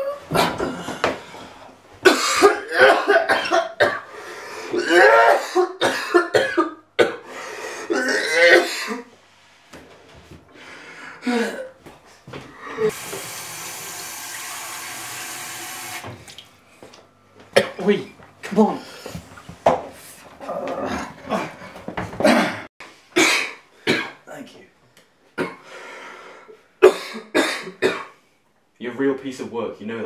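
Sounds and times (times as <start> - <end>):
man coughing harshly: 0.3 - 1.0, 2.0 - 4.1, 4.7 - 7.3, 7.9 - 9.1, 17.6 - 18.0, 22.2 - 24.2, 26.8 - 28.2.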